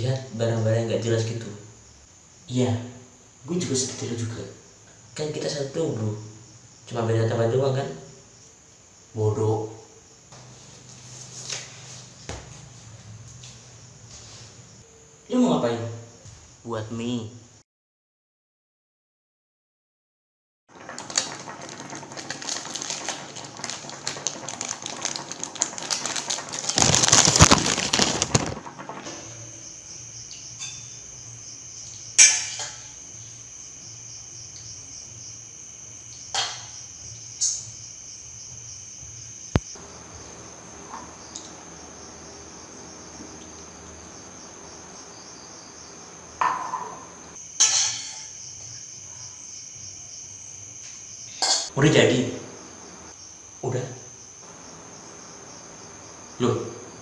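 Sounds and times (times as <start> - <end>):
cricket trill: 0.0 - 17.6, 20.7 - 57.0
rustling and scraping: 10.3 - 14.7, 20.9 - 29.4.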